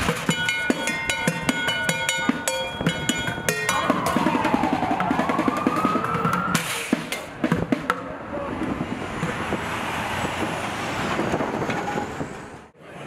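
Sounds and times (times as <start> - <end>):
city street traffic: 0.0 - 13.0
heavy truck driving past: 8.5 - 12.7.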